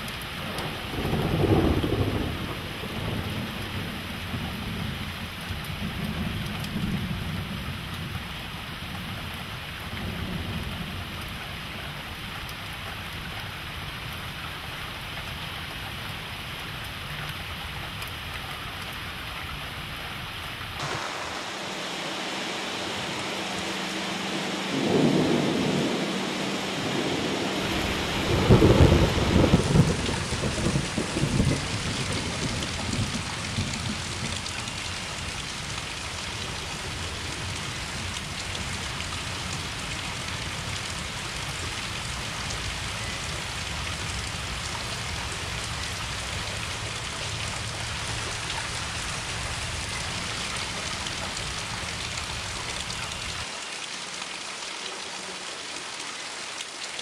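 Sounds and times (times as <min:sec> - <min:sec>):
steady rain: 0:00.0 - 0:57.0
thunder rolling: 0:00.5 - 0:04.0, 0:20.8 - 0:35.2.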